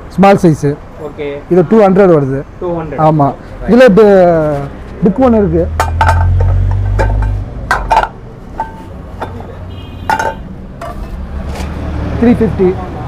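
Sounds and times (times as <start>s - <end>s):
iron pans clanking together: 5.8s - 9.5s, 10.1s - 11.2s.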